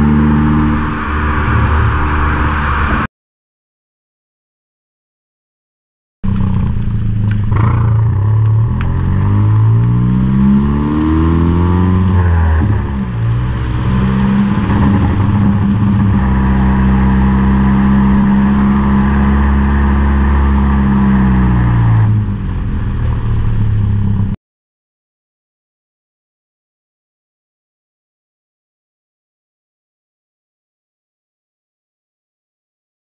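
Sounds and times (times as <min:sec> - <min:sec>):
car exhaust revving: 0:00.0 - 0:03.1, 0:06.2 - 0:24.4.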